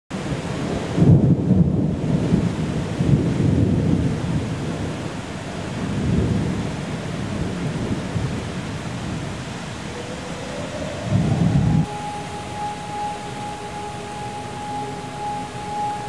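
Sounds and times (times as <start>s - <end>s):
heavy rain hiss: 0.2s - 16.0s
thunder rumbling: 7.3s - 16.0s.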